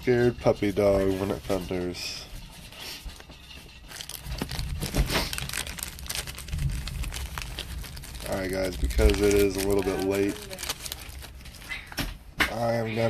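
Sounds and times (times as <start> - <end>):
foil wrapper crinkling and tearing: 3.2 - 12.0.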